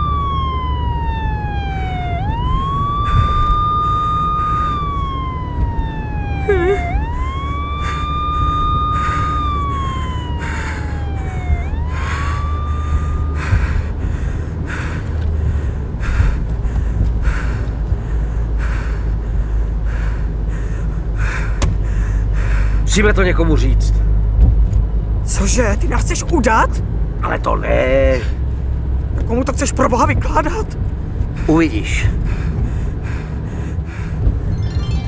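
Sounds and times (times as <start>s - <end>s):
emergency vehicle siren: 0.0s - 22.9s, 32.2s - 35.0s
low car rumble: 0.0s - 35.0s.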